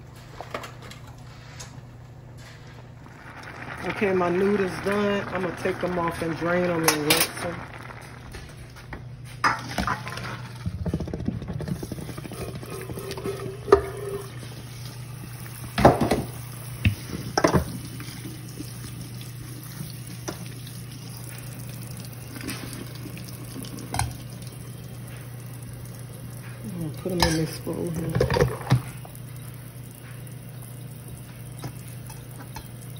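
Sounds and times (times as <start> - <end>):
tap water running into sink: 11.0 - 32.9
pot clanking against sink: 27.1 - 29.0.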